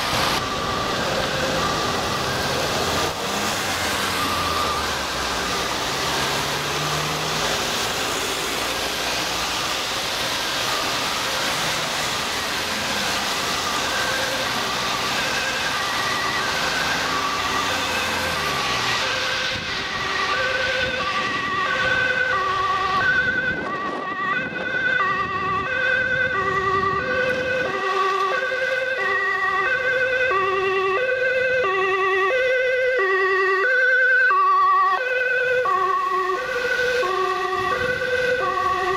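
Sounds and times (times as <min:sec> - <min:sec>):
ambulance two-tone siren: 0:00.0 - 0:38.9
road traffic noise: 0:00.0 - 0:38.9.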